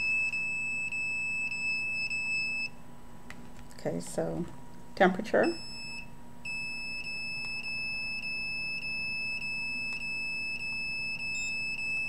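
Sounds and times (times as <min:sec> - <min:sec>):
high-pitched electronic alarm tone: 0:00.0 - 0:02.8, 0:05.5 - 0:12.0.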